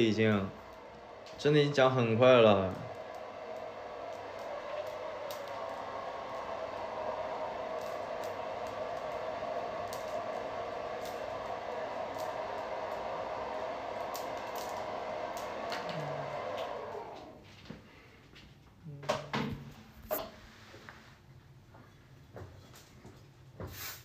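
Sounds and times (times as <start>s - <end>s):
hair dryer blowing: 0.0s - 17.5s.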